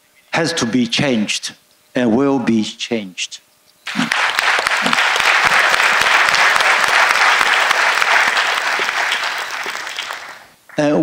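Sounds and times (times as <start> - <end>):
audience applauding: 3.9 - 10.6.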